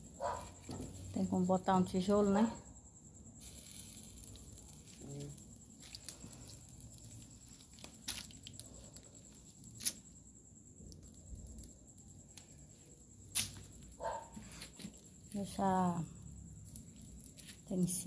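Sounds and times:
wood fire crackling: 0.0 - 18.0
fire popping: 3.3 - 15.6, 16.6 - 18.0.

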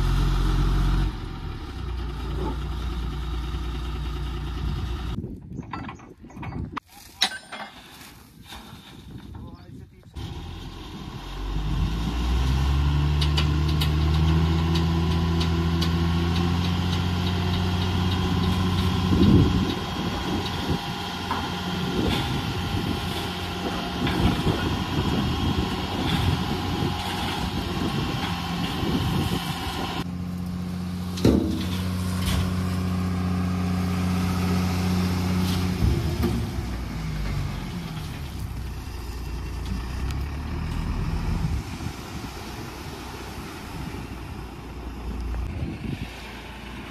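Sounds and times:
diesel truck engine revving: 0.0 - 5.2, 10.2 - 46.9
soil and stones sliding: 6.7 - 10.2, 13.2 - 33.6, 34.2 - 46.9.

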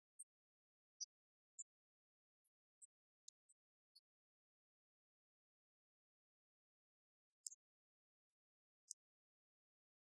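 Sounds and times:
faint high-pitched ticks: 0.0 - 10.0.

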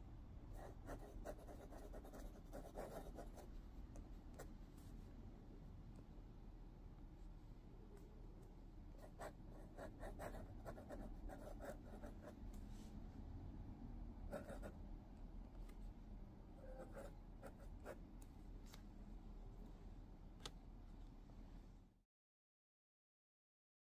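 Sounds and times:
pen nib scratching on paper: 0.6 - 3.5, 9.0 - 12.4.

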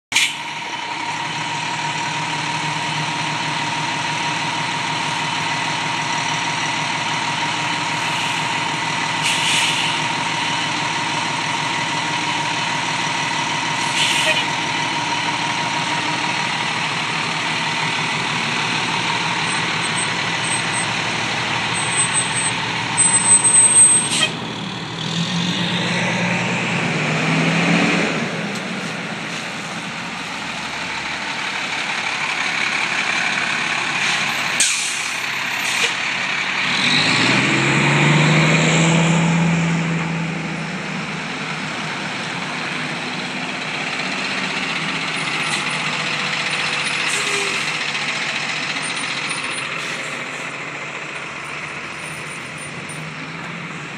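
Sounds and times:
air brakes hissing: 0.1 - 0.5, 8.0 - 8.6, 9.2 - 10.2, 13.8 - 14.5, 34.0 - 36.0, 46.9 - 47.8
diesel truck engines idling: 0.1 - 53.9.

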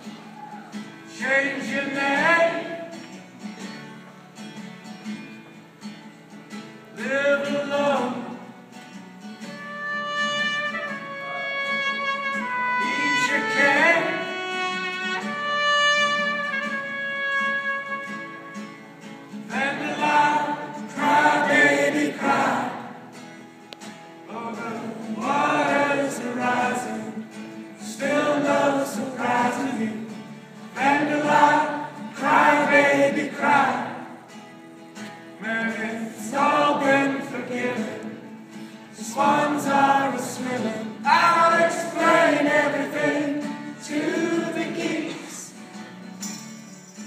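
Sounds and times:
strummed acoustic guitars: 0.0 - 47.0
many voices singing together: 1.1 - 3.0, 12.6 - 14.5, 19.5 - 23.2, 24.3 - 34.4, 35.4 - 45.7
person singing: 12.8 - 14.8.

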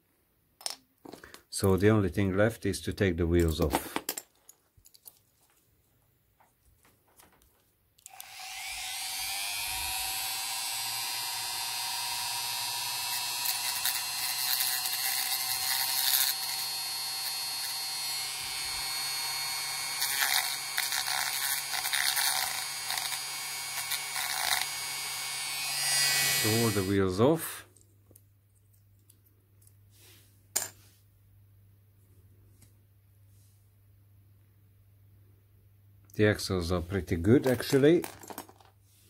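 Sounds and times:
rotary tool whining: 8.0 - 27.2
drill bit grinding metal: 8.1 - 27.2.

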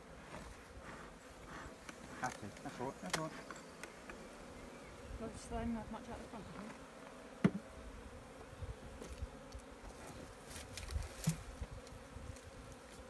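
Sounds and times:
honeybees buzzing: 0.0 - 13.0.

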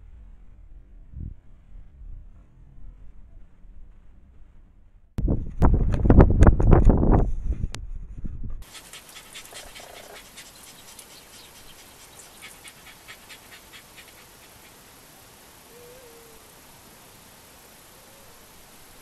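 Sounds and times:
wind buffeting microphone: 5.2 - 8.8
hiss: 8.6 - 19.0
owl hooting: 15.6 - 16.5.

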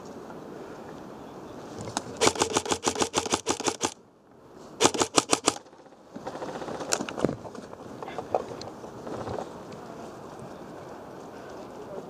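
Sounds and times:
airsoft gun firing bursts: 2.2 - 4.0, 4.8 - 5.7.

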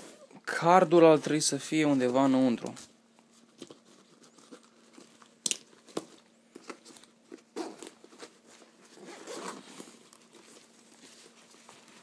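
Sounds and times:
fabric bag rustling: 7.0 - 12.0.

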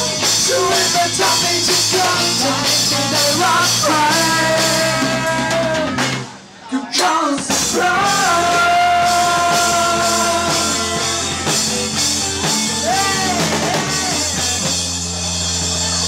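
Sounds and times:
person singing: 0.0 - 14.8
drum kit: 0.0 - 16.0
electric guitars: 7.5 - 16.0.

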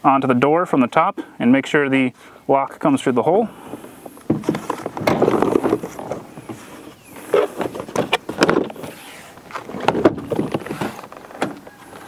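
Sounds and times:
plastic scraping against door: 3.7 - 12.0.

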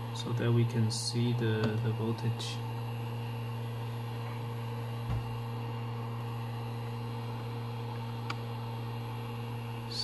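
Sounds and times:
low electrical hum: 0.0 - 10.0
soft low thump: 5.0 - 5.3.

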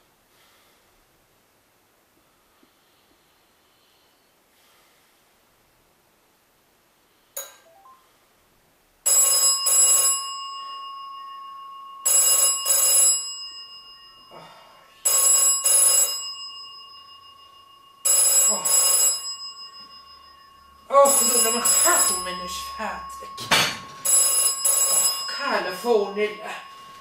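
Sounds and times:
telephone bell ringing: 9.0 - 27.0.

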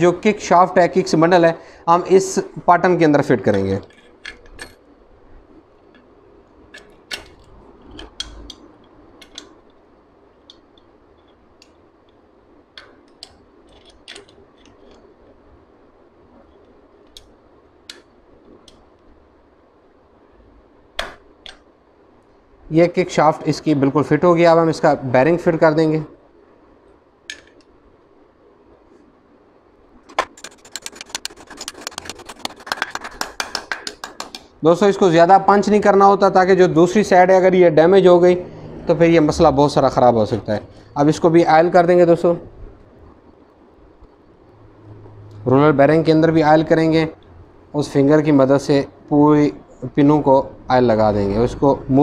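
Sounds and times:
metal parts clicking and clinking: 12.8 - 15.0
fast light metal taps: 30.1 - 34.6.

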